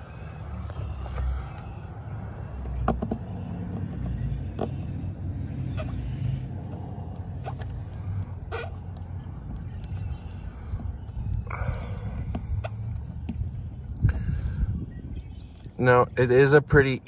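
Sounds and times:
low steady rumble: 0.0s - 16.8s.

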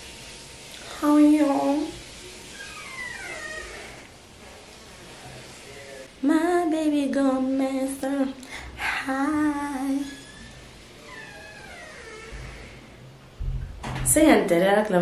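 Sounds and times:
woman singing unaccompanied: 6.2s - 10.2s.

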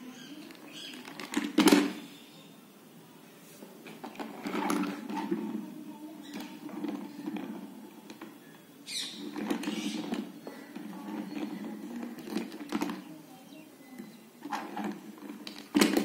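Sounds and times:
plastic toy scraping and rattling: 0.5s - 2.0s, 3.8s - 13.1s, 14.4s - 16.0s.

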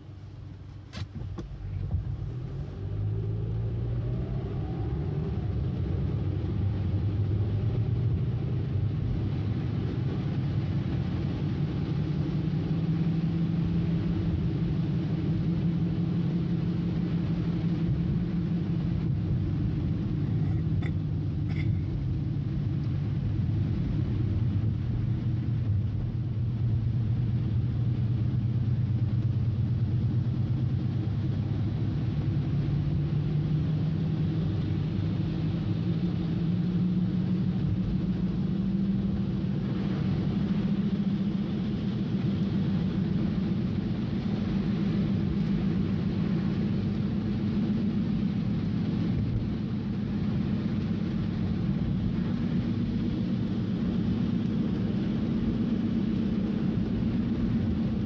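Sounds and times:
car engine and road rumble: 0.0s - 58.0s
rain hiss: 0.0s - 58.0s.

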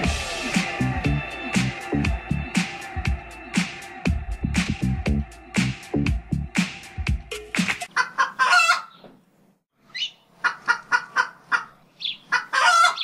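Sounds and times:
music: 0.0s - 7.9s
chicken clucking: 7.9s - 9.1s, 9.9s - 13.0s.

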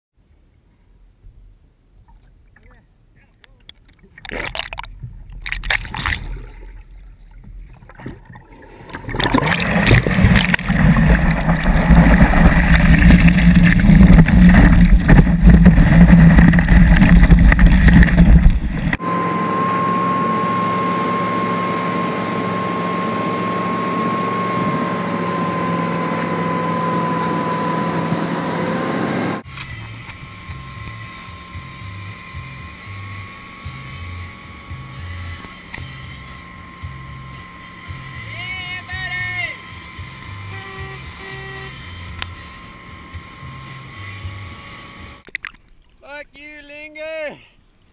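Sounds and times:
light water splashing: 3.4s - 19.0s, 45.2s - 46.1s
boat engine droning: 4.2s - 45.3s
thin steady whine: 9.1s - 45.3s.

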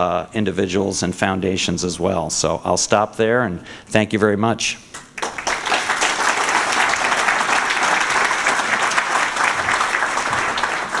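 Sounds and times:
audience applauding: 5.2s - 11.0s.

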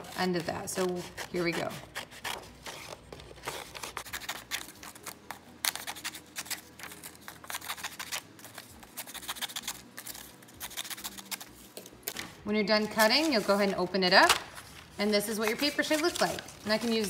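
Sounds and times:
scissors snipping paper: 0.0s - 12.2s, 15.3s - 17.0s
paper rustling: 5.8s - 17.0s.

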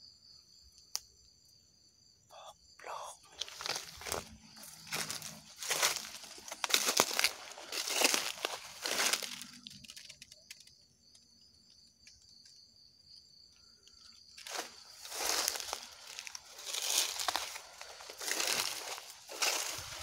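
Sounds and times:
footsteps crunching through dry leaves: 2.9s - 9.9s, 14.4s - 20.0s.

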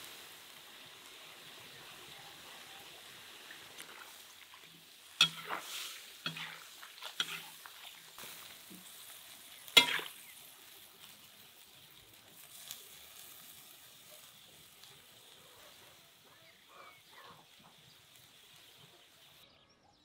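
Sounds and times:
food sizzling in a pot: 0.0s - 19.4s
metal spatula scraping a pot: 3.9s - 8.9s, 9.7s - 10.3s.

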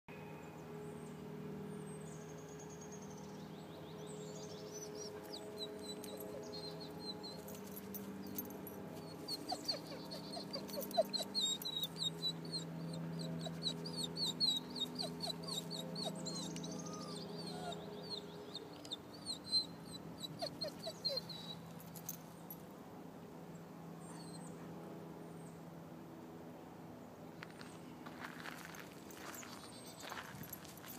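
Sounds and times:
steady low hum: 0.1s - 30.9s
birds chirping and calling: 4.3s - 8.4s, 9.0s - 21.6s.

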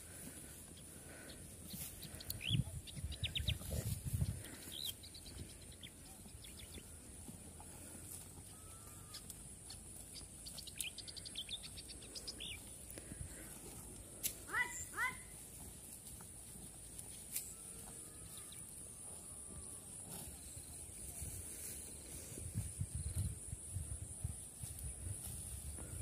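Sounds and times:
small birds chirping: 0.1s - 15.2s.

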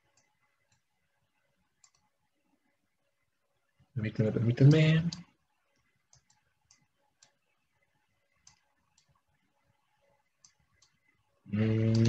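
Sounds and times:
computer mouse clicks: 0.0s - 0.9s, 1.8s - 2.1s, 5.1s - 7.5s, 8.3s - 9.2s, 10.4s - 11.1s
man's voice: 11.5s - 12.0s.

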